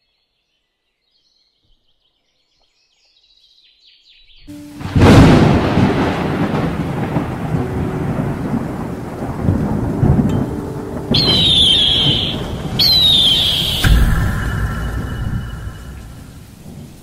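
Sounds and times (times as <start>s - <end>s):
crackling rain-like hiss: 4.5s - 17.0s
thunder-like rumble: 4.5s - 17.0s
shimmering swooshes: 10.5s - 17.0s.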